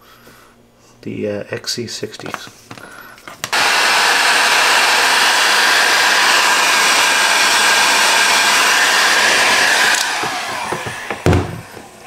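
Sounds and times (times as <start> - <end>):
heat gun blowing hot air: 3.4 - 12.0.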